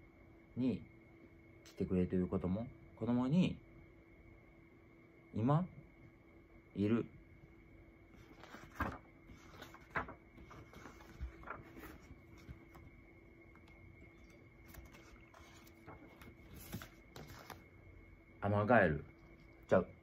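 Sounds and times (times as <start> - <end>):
faint electrical hum: 0.0 - 20.0
book pages flipping: 8.1 - 17.7.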